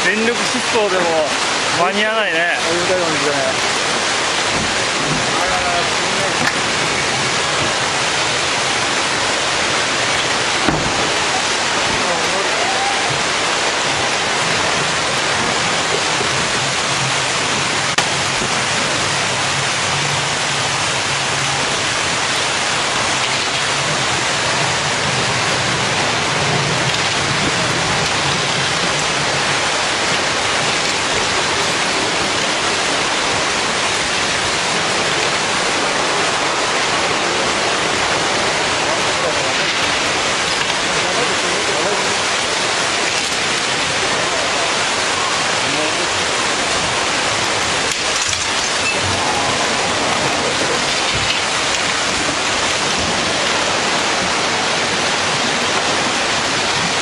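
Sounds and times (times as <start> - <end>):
floodwater rushing: 0.0 - 57.0
debris knocks: 10.0 - 12.2.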